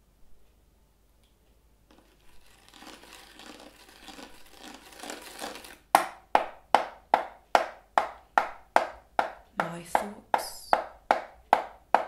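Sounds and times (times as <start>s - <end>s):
fingers scratching a box lid: 1.9s - 5.8s.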